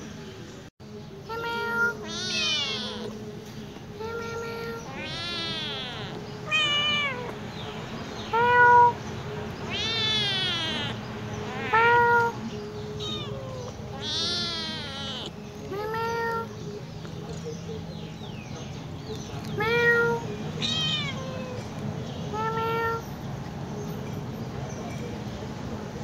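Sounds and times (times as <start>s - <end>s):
kitten meowing: 1.3s - 3.2s, 4.0s - 7.4s, 9.7s - 12.4s, 13.0s - 16.5s, 19.6s - 21.6s.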